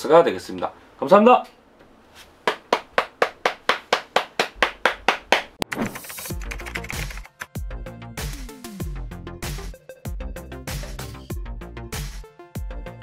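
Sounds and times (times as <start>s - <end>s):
gloved hands clapping: 2.4s - 7.5s.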